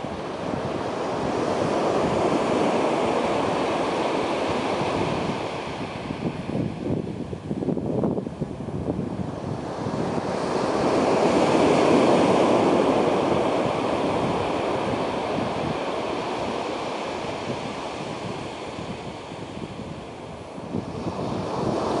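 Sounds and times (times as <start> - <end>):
surf breaking on beach: 0.0 - 7.0, 8.9 - 22.0
wind buffeting microphone: 0.0 - 22.0.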